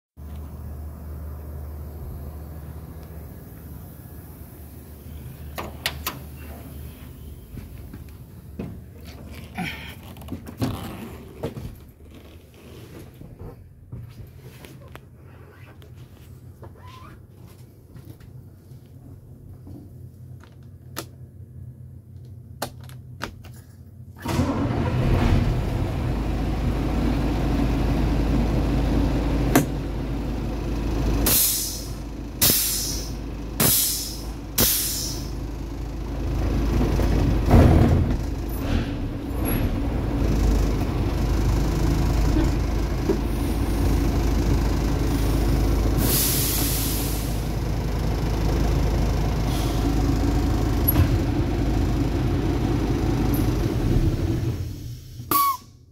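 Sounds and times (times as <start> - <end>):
diesel truck engine rumbling: 0.2 - 13.9, 24.0 - 55.7
compressed air hisses: 31.3 - 35.3, 46.0 - 47.4.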